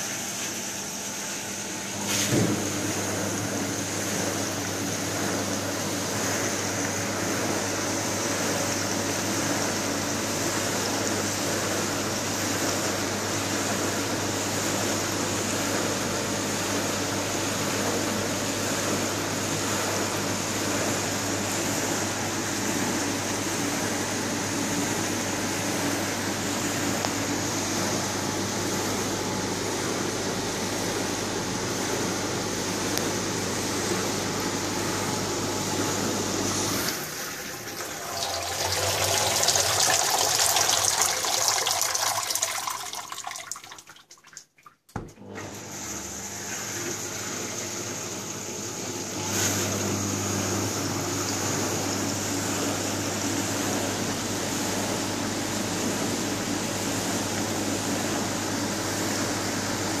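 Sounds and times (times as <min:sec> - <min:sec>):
water spraying inside dishwasher: 0:00.0 - 0:19.5, 0:35.8 - 0:54.9
dishwasher pump hum: 0:00.0 - 1:00.0.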